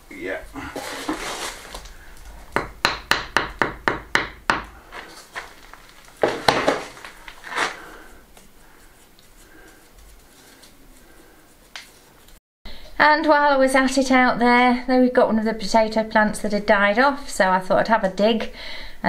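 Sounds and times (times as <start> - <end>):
trowel scraping knocks: 2.5 - 8.0.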